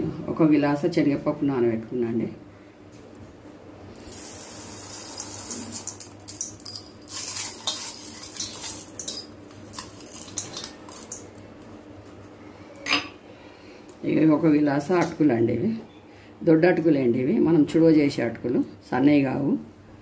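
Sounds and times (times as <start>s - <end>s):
steel tumbler clinking: 5.7s - 11.3s.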